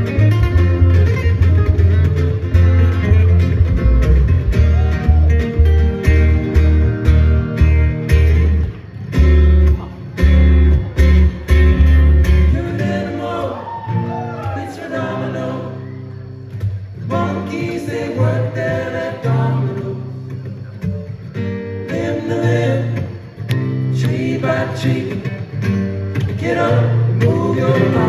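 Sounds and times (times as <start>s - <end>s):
plucked double bass: 0.0s - 13.0s
acoustic guitars strummed: 0.0s - 28.0s
man singing: 26.5s - 28.0s.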